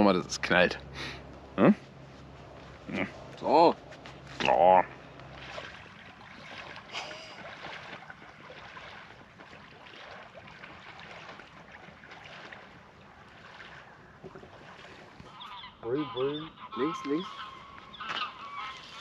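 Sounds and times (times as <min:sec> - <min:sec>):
wind: 0:00.0 - 0:19.0
water rushing: 0:02.5 - 0:15.5.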